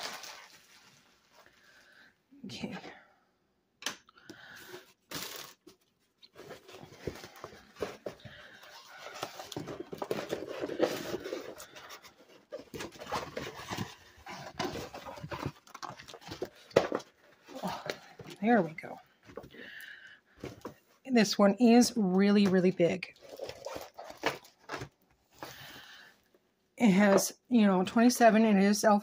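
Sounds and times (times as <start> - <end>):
canvas and plastic film crinkling: 0.0 - 1.6, 22.4 - 25.7.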